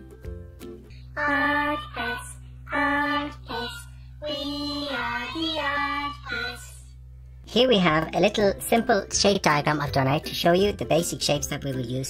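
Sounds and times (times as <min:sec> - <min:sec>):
high voice singing jingle: 0:01.2 - 0:06.9.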